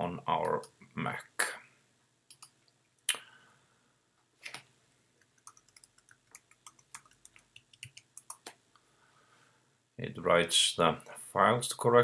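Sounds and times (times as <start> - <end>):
computer keyboard typing: 2.3 - 2.6, 5.2 - 8.5.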